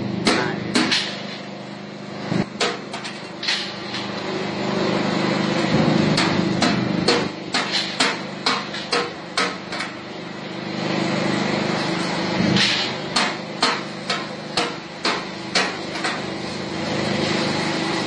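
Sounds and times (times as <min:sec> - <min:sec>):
machine hum: 0:00.0 - 0:18.0
charcoal sticks knocking on metal: 0:00.2 - 0:01.2, 0:02.6 - 0:04.1, 0:06.1 - 0:10.0, 0:12.6 - 0:16.3.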